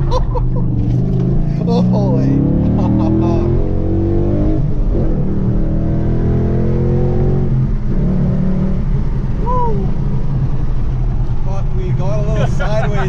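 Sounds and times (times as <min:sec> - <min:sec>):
car engine accelerating hard: 0:00.0 - 0:12.7.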